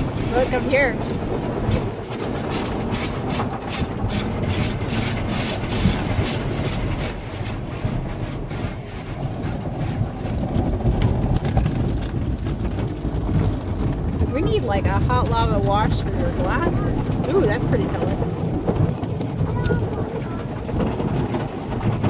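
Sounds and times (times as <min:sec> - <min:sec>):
car wash strips slapping windows: 0:00.0 - 0:13.8
steady low rumble: 0:00.0 - 0:22.0.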